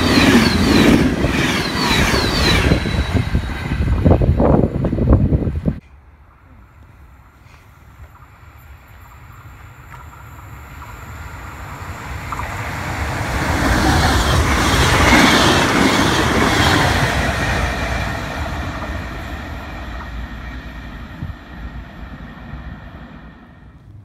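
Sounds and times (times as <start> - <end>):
passenger train passing: 0.0 - 24.0
wheels on rails: 8.0 - 24.0.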